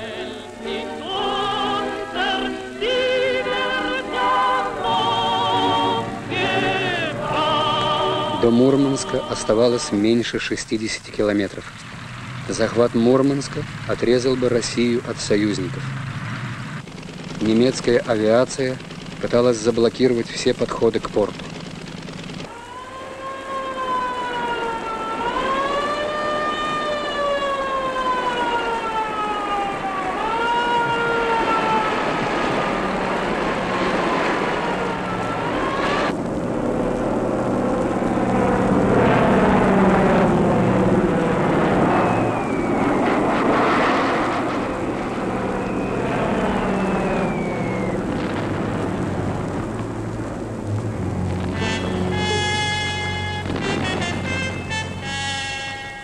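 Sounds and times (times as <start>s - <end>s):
air-raid siren wailing: 0.0s - 10.5s, 22.4s - 56.0s
aircraft engines droning: 0.0s - 56.0s
short falling whistles: 41.9s - 43.0s, 45.5s - 48.2s.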